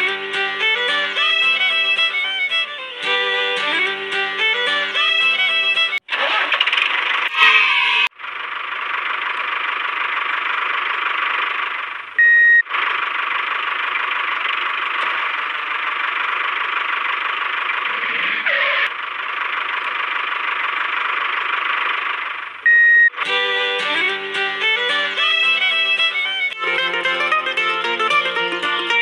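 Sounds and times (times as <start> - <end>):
toy tractor buzzing: 0.0 - 9.4, 16.6 - 19.0, 22.6 - 29.0.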